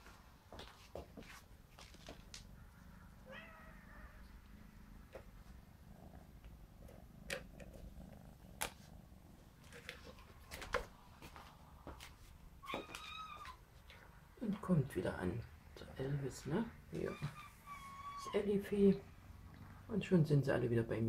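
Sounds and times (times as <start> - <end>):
kitten meowing: 3.2 - 4.2, 12.6 - 13.6, 17.0 - 18.4.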